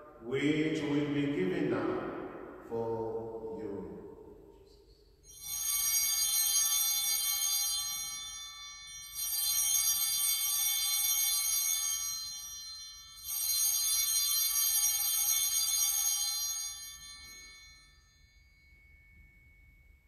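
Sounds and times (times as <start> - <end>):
altar bells ringing: 5.2 - 20.0.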